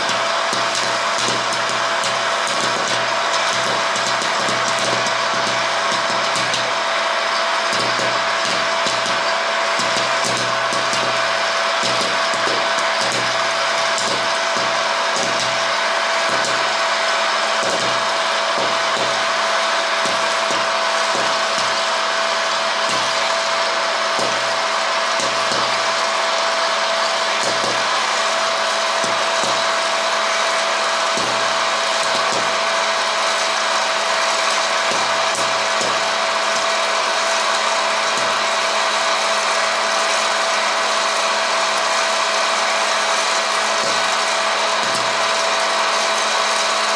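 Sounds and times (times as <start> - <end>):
popcorn kernels popping: 0.0 - 6.9, 7.6 - 16.9
popcorn machine fan whine: 0.0 - 46.9.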